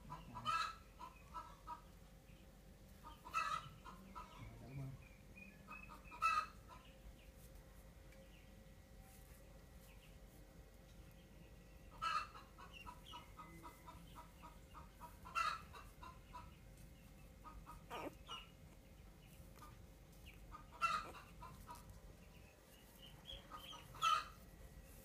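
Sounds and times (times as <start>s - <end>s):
short faint animal calls: 17.7s - 18.6s.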